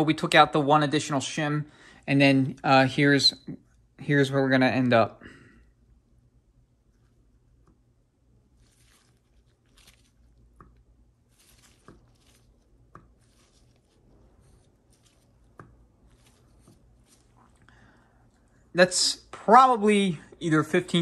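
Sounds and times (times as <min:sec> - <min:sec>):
soft rustling of gloved hands: 0:06.7 - 0:19.0.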